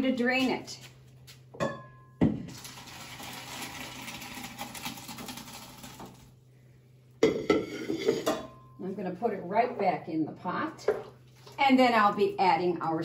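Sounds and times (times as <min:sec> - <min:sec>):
water splashing into colander: 0:02.5 - 0:06.3.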